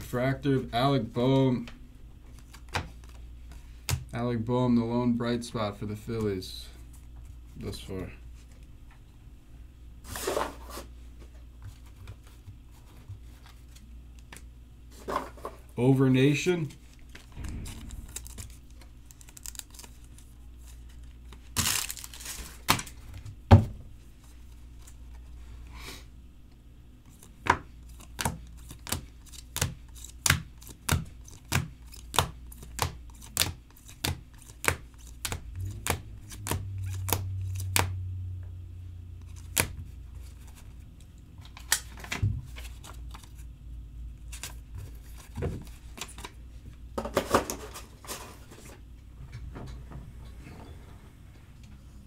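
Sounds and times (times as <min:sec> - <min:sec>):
low hum: 0:17.1 - 0:20.9, 0:35.4 - 0:41.5, 0:49.0 - 0:52.0.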